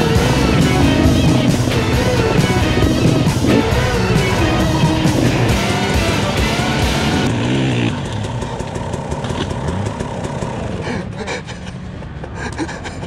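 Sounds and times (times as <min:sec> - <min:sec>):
background music: 0:00.0 - 0:07.9
dirt bike engine running: 0:00.0 - 0:12.5.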